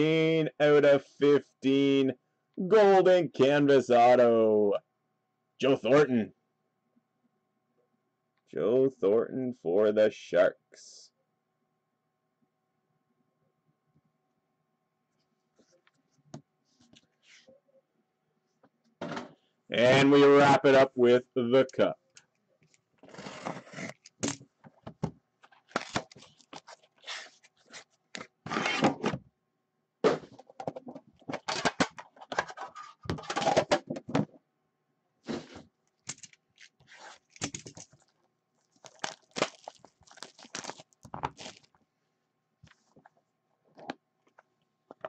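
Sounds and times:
cardboard scraping: 23.0s - 24.0s, 26.1s - 29.1s.

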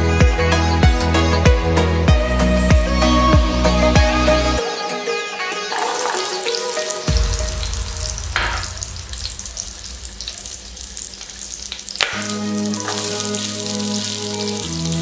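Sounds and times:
background music: 0.0s - 11.0s, 12.0s - 15.0s
shallots frying in hot oil: 5.7s - 15.0s.

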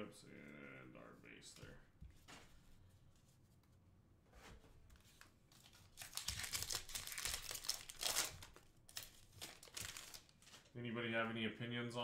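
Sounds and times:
plastic wrapper crinkling: 5.5s - 10.8s.

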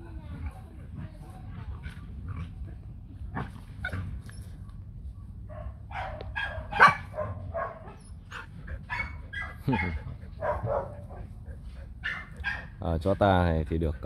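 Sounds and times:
steady low rumble: 0.0s - 14.0s
dogs barking and yipping: 5.5s - 13.3s.

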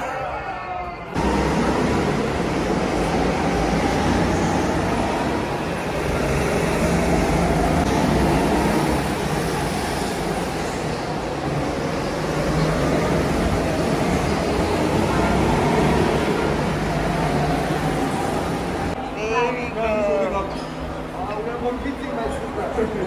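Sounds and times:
road vehicle rumble and hiss: 1.2s - 19.1s.

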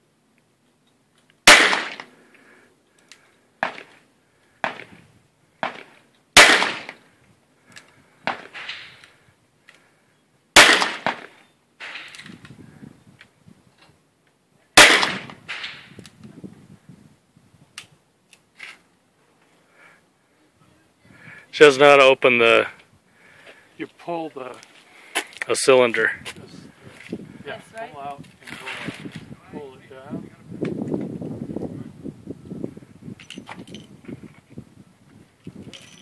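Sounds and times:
revolver gunshots: 1.4s - 2.1s, 5.6s - 7.0s, 10.6s - 12.1s, 14.8s - 15.9s.

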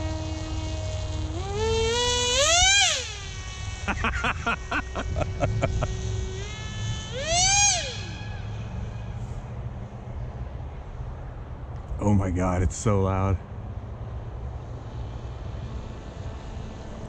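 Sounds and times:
short pulses: 0.0s - 9.4s
electric motor whining: 0.0s - 9.8s, 14.4s - 17.0s.

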